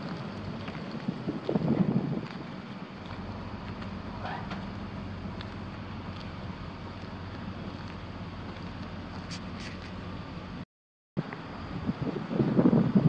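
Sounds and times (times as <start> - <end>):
wind on microphone: 0.0 - 4.6, 11.2 - 13.0
truck engine idling: 0.0 - 10.6.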